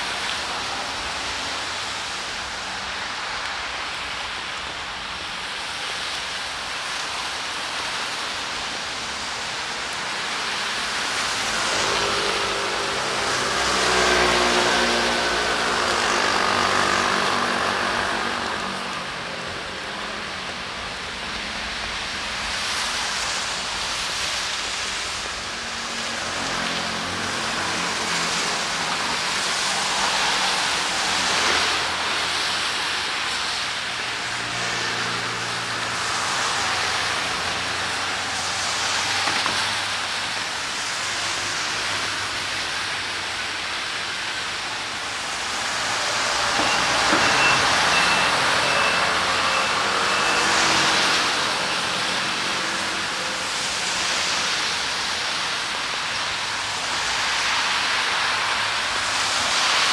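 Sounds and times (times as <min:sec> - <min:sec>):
steady rain: 0:00.0 - 0:59.9
tyre hiss on wet road: 0:00.0 - 0:59.9
high beeps: 0:46.6 - 0:50.8.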